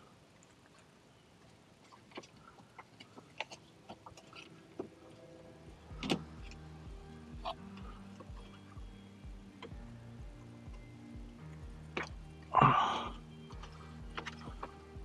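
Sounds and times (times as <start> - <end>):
faint music with a beat: 3.8 - 15.0.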